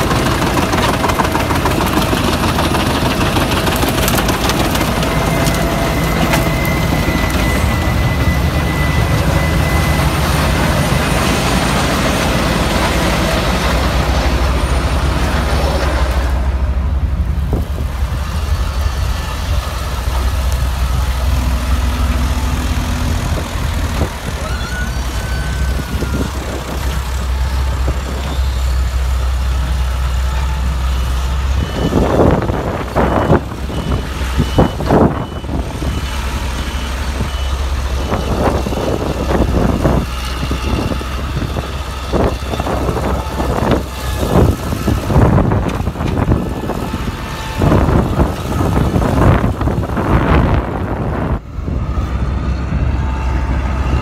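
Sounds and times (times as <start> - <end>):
wood shredding: 0.0 - 16.6
wood chipper engine drone: 0.0 - 54.0.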